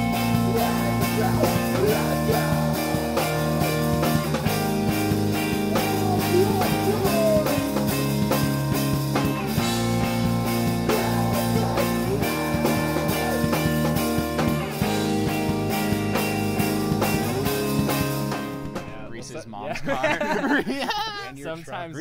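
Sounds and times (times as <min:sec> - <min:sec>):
electric guitar chords: 0:00.0 - 0:19.1
bass guitar: 0:00.0 - 0:19.2
drum kit steady beat: 0:00.0 - 0:19.3.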